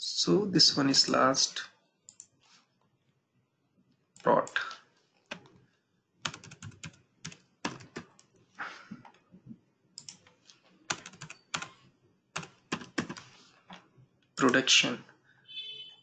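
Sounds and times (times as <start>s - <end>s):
computer keyboard typing: 2.1s - 2.3s, 5.2s - 5.6s, 6.2s - 8.3s, 10.0s - 11.8s, 12.4s - 14.6s.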